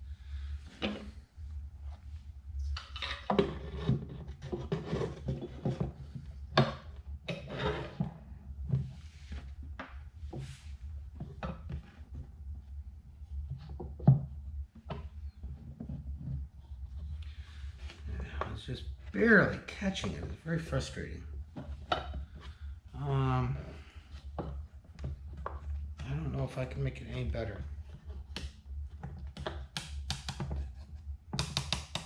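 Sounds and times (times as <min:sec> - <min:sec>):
steady low hum: 0:00.0 - 0:32.0
wood-on-wood knocks and clicks: 0:31.3 - 0:32.0.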